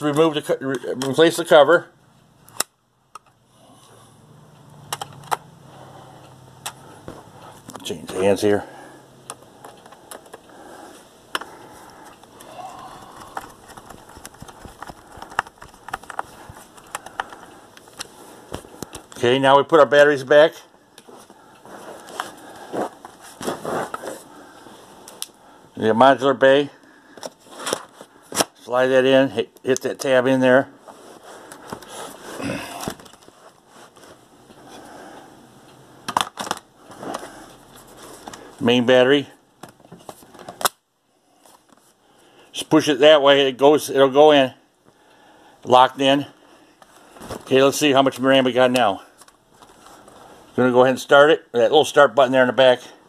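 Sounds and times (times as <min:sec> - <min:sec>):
laptop handling rustling and scraping: 0:04.8 - 0:19.3, 0:21.0 - 0:25.2, 0:27.0 - 0:28.6, 0:30.8 - 0:35.2, 0:36.0 - 0:38.6, 0:39.6 - 0:42.0, 0:46.7 - 0:47.7, 0:48.9 - 0:50.5.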